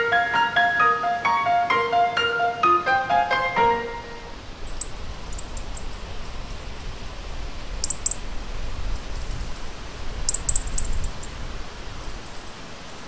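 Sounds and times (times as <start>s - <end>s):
low outdoor rumble: 4.2s - 13.0s
high thin songbird calls: 4.7s - 6.9s, 7.7s - 8.3s, 10.2s - 11.4s.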